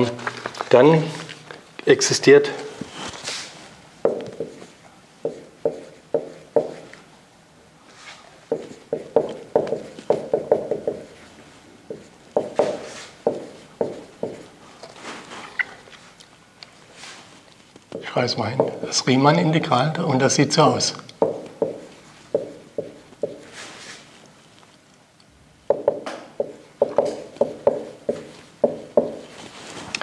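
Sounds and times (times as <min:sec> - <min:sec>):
marker writing on whiteboard: 0:04.0 - 0:07.0, 0:08.5 - 0:14.6, 0:21.1 - 0:23.9, 0:25.7 - 0:29.3.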